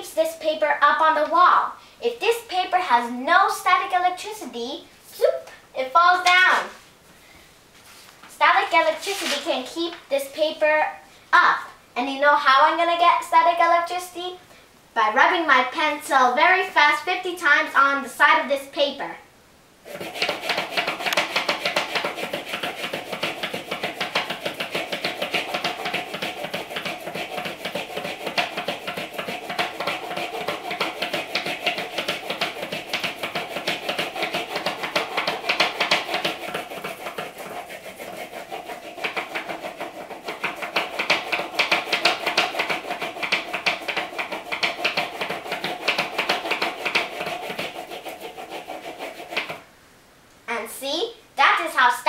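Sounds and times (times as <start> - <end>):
pencil scratching on paper: 19.9 - 49.6.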